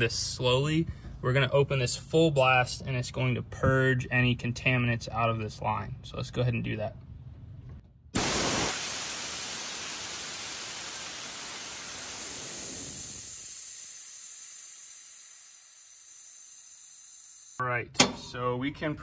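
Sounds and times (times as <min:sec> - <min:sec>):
pressurized gas hissing: 0:08.2 - 0:16.2.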